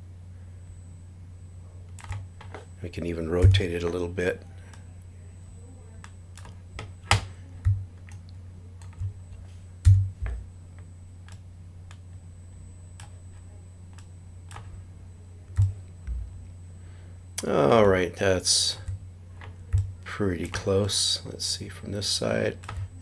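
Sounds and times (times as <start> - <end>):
steady low hum: 0.0 - 23.0
computer keyboard and mouse clicks: 2.0 - 2.6, 6.0 - 9.2, 22.6 - 22.9.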